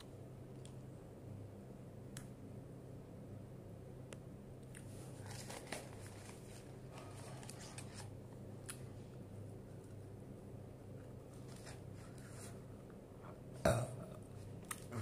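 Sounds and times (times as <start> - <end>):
steady low hum: 0.0 - 15.0
paper wrapper crinkling: 5.0 - 8.2.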